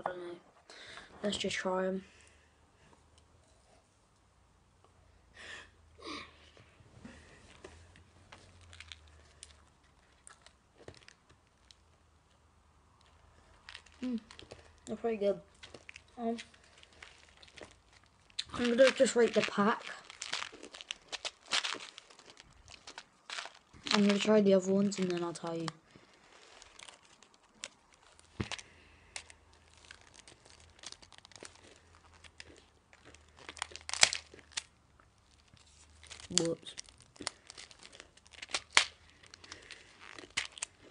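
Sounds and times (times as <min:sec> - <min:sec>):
chewing sweets: 0:07.1 - 0:12.0, 0:12.9 - 0:40.9
candy packaging crinkling: 0:07.1 - 0:12.4, 0:13.0 - 0:40.9
packaging tearing: 0:15.6 - 0:40.9.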